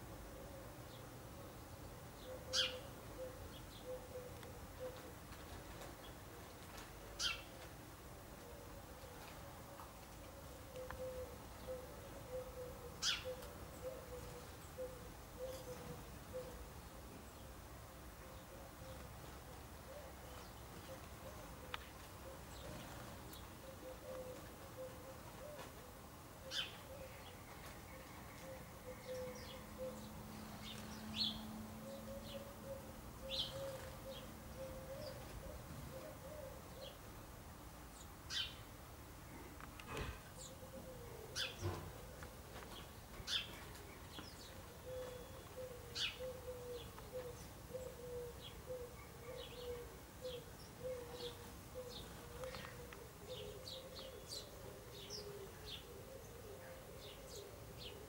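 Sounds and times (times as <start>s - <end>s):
sparrows chirping: 1.6s - 5.0s, 7.2s - 7.6s, 10.7s - 17.6s, 26.5s - 37.1s, 37.9s - 38.7s, 40.3s - 58.0s.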